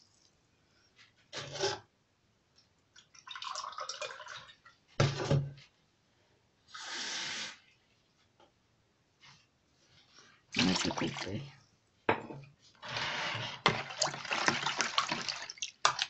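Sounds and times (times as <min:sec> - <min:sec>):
water pouring into a bowl: 0:03.1 - 0:04.7, 0:13.7 - 0:16.0.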